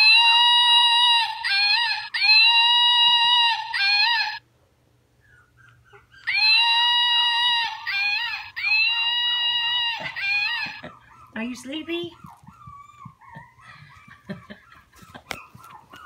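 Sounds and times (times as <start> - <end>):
toy monkey calls: 0.0 - 4.4, 6.2 - 10.8.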